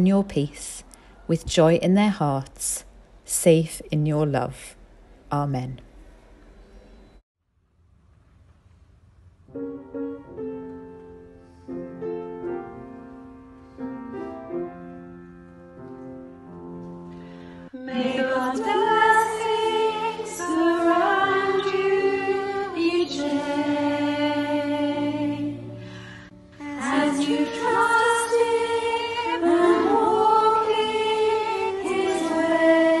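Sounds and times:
piano notes: 0:09.4 - 0:33.0
women singing a hymn: 0:17.7 - 0:33.0.

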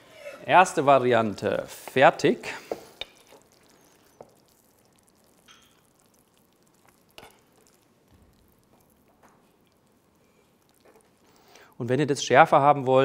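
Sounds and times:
metal spoon scraping frying pan: 0:07.1 - 0:07.7.

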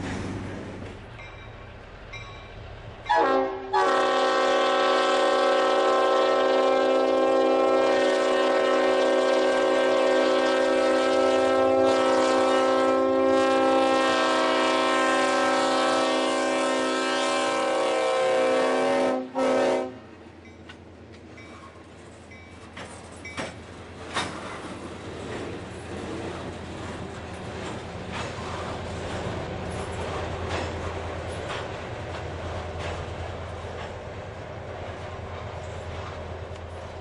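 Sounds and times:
locomotive air horn blasts: 0:03.1 - 0:20.1.

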